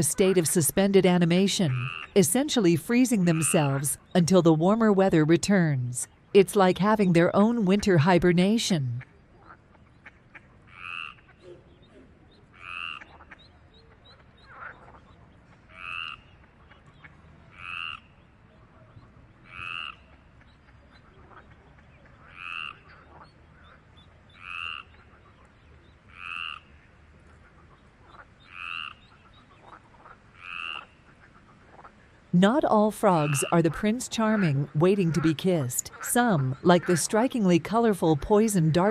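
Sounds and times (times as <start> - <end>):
frog croaking: 0.0 - 5.1, 10.7 - 11.4, 12.5 - 13.4, 15.7 - 16.3, 17.5 - 18.2, 19.4 - 20.1, 22.2 - 23.3, 24.3 - 25.2, 26.1 - 26.8, 28.1 - 31.0, 33.0 - 37.6.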